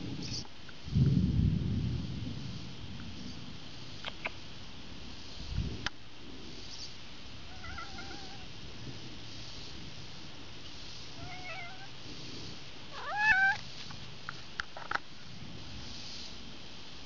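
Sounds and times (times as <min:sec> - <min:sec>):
cat meowing: 0:07.5 - 0:08.5, 0:11.2 - 0:11.9, 0:12.9 - 0:13.6.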